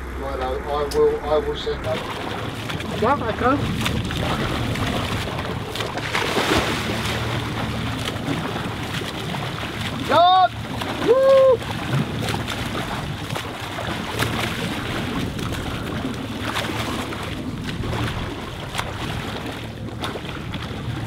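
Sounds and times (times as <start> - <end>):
sea water: 0.0 - 21.0
wind: 0.0 - 21.0
swimming stroke splashes: 1.8 - 21.0
person shouting: 10.1 - 11.6.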